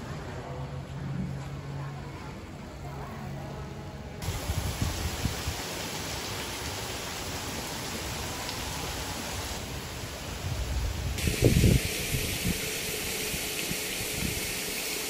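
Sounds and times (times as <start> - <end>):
water falling from waterfall: 4.2 - 15.0.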